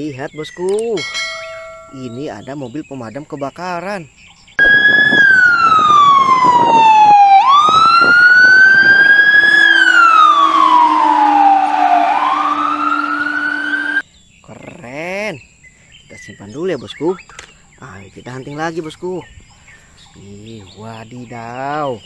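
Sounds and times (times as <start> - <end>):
fire engine siren wailing: 4.6 - 14.0.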